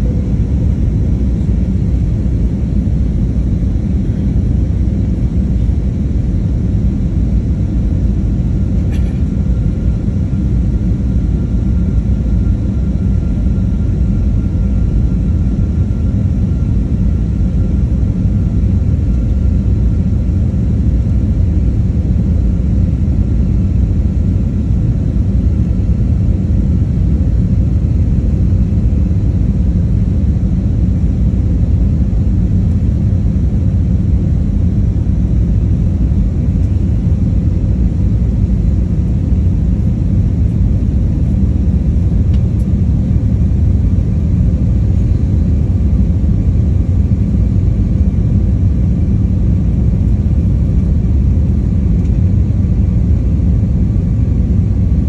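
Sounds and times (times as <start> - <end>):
airliner engines and rushing air: 0.0 - 55.0
faint steady hum: 0.0 - 55.0.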